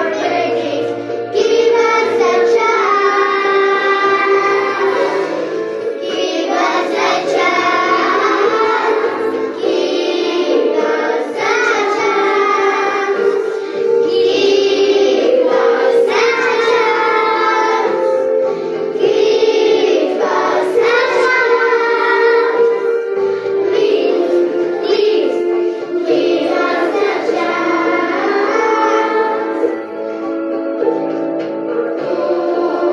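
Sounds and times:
children singing: 0.0 - 32.9
instrumental backing music: 0.0 - 32.9.

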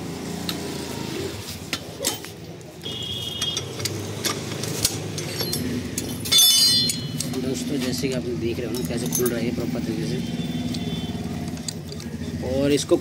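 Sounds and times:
socket and wrench clinking: 3.4 - 9.6, 11.4 - 12.2
high metallic ring: 5.2 - 7.3.

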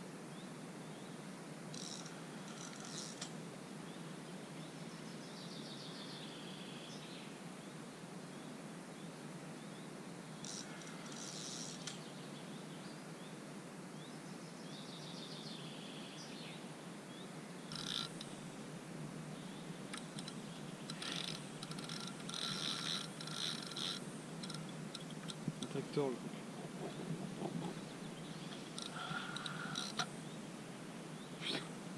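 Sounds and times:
outdoor background noise: 0.0 - 31.9
birds chirping: 19.3 - 30.5.

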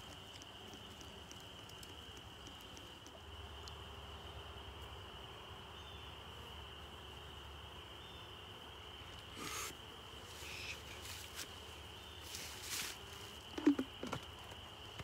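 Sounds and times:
faint ticks: 0.0 - 3.8.

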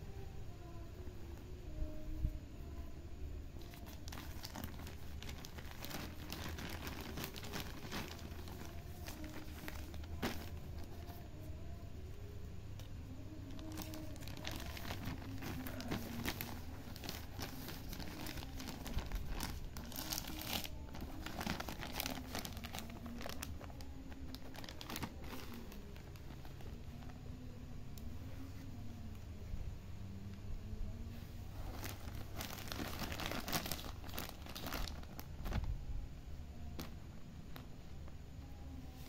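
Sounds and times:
plastic packaging crinkling: 3.6 - 11.3, 13.4 - 27.2, 31.6 - 35.8.

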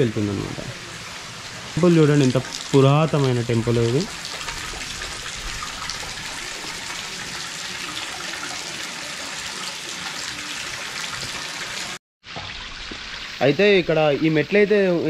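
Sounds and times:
water running and splashing: 0.0 - 14.8.

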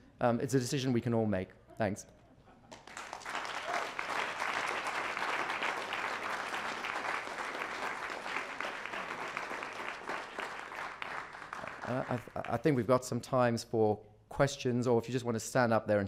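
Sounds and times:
audience applauding: 2.7 - 12.7.

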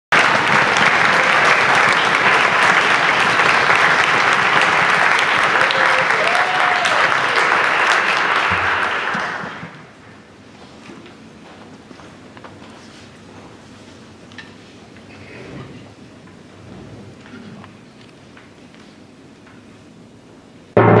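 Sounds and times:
audience applauding: 0.1 - 10.2.

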